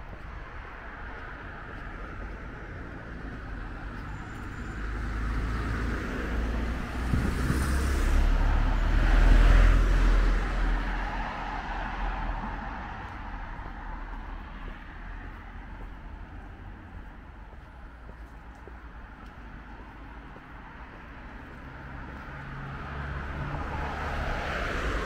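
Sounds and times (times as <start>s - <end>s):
vehicle passing by: 4.9s - 13.2s.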